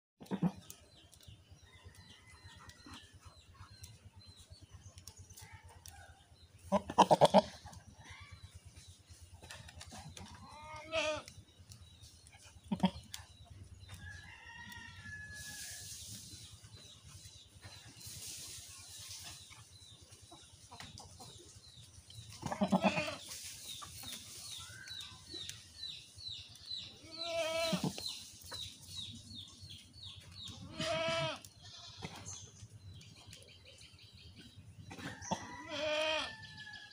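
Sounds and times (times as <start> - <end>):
goats bleating: 6.7 - 7.5, 10.4 - 11.3, 22.4 - 23.2, 27.0 - 28.0, 30.6 - 32.2, 35.3 - 36.3.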